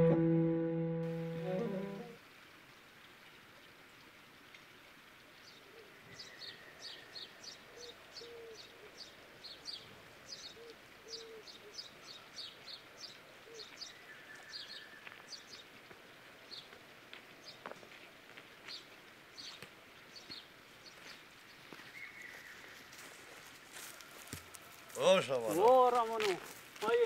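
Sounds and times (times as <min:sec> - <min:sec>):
birds chirping: 0:05.4 - 0:15.7, 0:18.6 - 0:23.3
lower bird calls: 0:05.6 - 0:15.6, 0:21.8 - 0:22.9.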